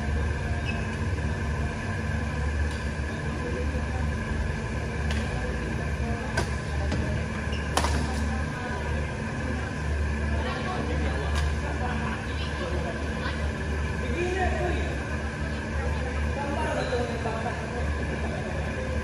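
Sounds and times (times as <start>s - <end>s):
steady low hum: 0.0s - 19.0s
racket hitting shuttlecock: 7.7s - 8.2s.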